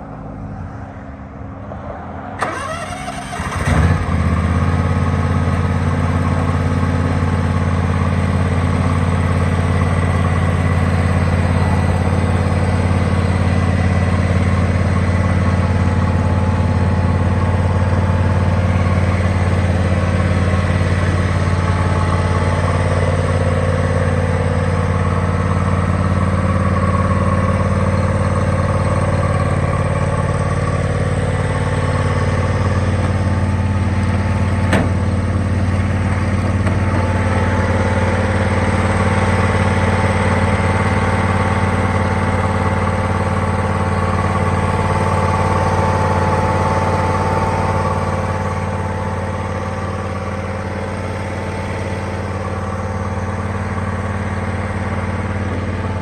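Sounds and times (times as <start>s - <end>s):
lawn tractor engine cranking: 2.4s - 4.5s
lawn tractor engine running: 2.4s - 56.0s.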